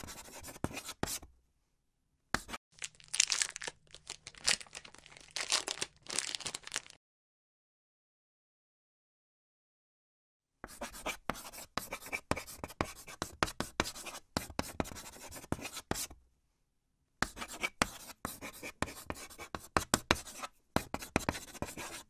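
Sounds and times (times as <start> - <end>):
chalk scratching on chalkboard: 0.0 - 1.3, 10.7 - 16.1, 17.2 - 22.0.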